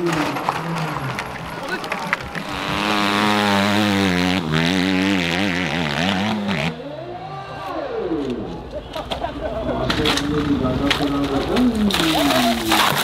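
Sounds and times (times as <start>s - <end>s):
dirt bike engine revving: 2.0s - 7.0s.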